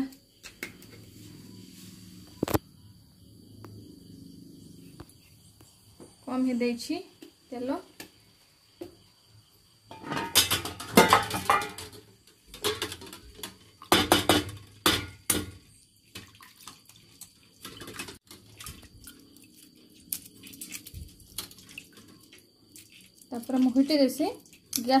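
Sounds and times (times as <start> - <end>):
metal pan and utensils clattering: 9.9 - 15.6.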